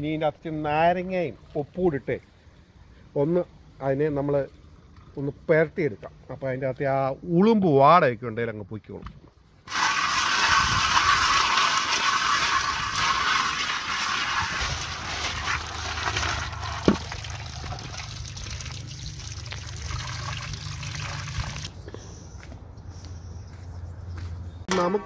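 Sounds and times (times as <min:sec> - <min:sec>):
water splashing into metal pan: 0:09.7 - 0:21.7.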